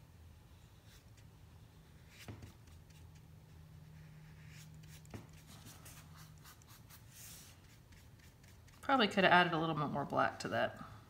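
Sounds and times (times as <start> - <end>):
faint low hum: 0.0 - 11.0
paintbrush on paper: 0.6 - 9.0.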